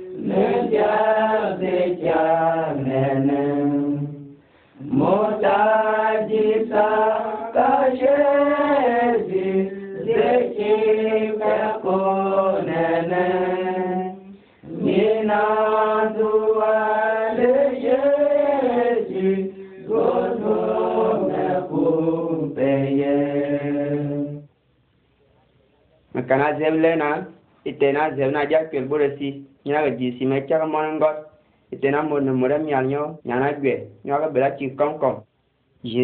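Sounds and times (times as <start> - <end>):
unaccompanied chanted singing: 0.0 - 24.5.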